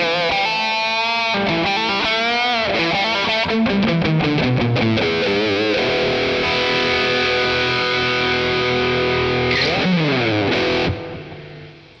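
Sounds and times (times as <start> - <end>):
distorted electric guitar chord: 0.0 - 12.0.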